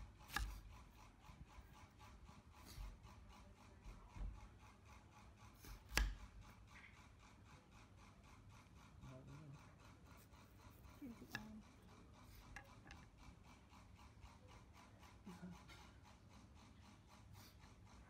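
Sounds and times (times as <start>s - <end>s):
knife slicing pineapple: 0.0s - 1.9s, 5.5s - 6.6s, 10.2s - 13.1s
knife knocking on board: 0.3s - 0.6s, 5.8s - 6.2s.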